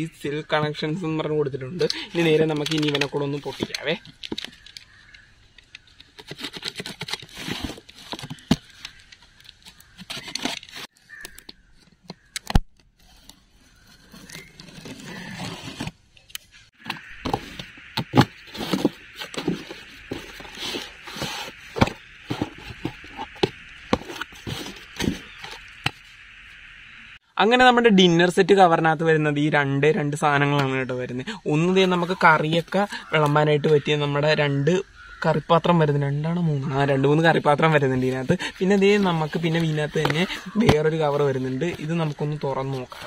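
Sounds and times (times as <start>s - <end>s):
tape and cardboard tearing: 6.2s - 11.5s.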